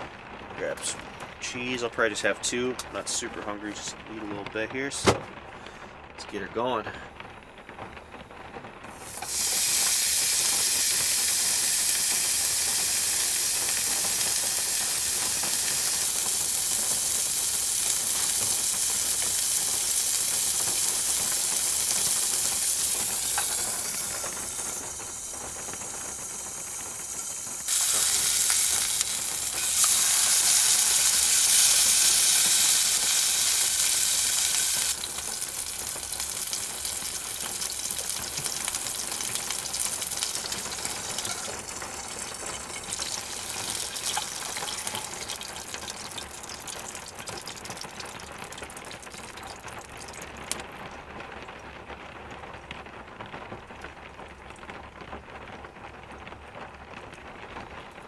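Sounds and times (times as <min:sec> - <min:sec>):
burger patty sizzling in a pan: 0:08.8 - 0:50.6.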